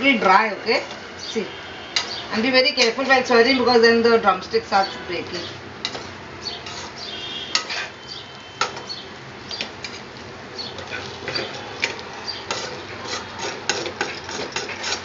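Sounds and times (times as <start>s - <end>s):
spatula scraping and knocking pan: 5.8s - 8.0s, 9.6s - 10.1s, 10.7s - 15.0s.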